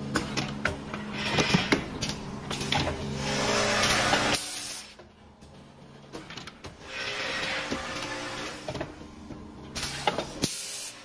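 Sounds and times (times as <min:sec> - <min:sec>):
hiss of air: 0:09.8 - 0:11.0.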